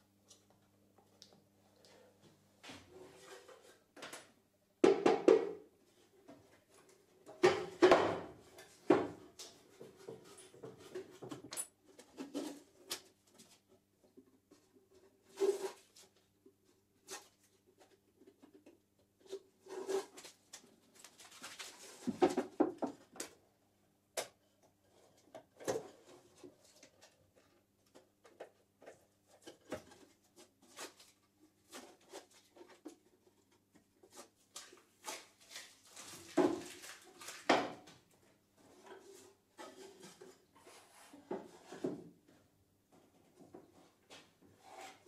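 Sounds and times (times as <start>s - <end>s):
wooden box knocking on workbench: 4.8s - 5.6s.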